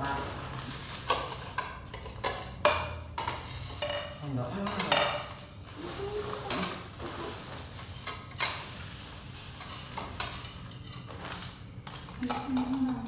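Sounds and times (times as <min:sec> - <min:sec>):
plastic bag crinkling: 0:00.4 - 0:01.6, 0:05.6 - 0:10.5.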